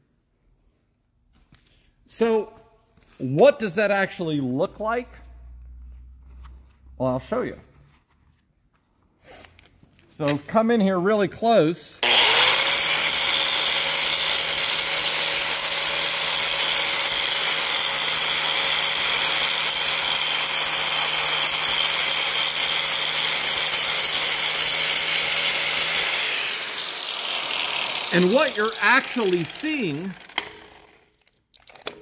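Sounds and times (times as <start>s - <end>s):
angle grinder grinding steel: 12.0s - 31.2s.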